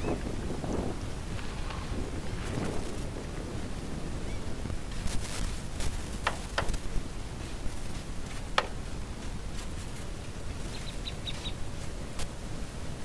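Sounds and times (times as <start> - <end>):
hand brush sweeping: 4.9 - 12.3.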